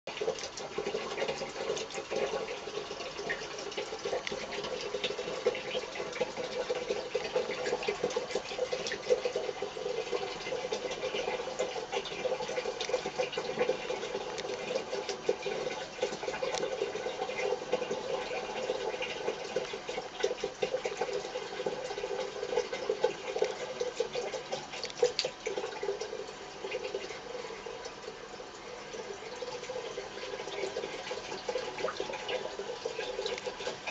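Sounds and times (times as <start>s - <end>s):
tap water pouring into basin: 0.1s - 33.9s.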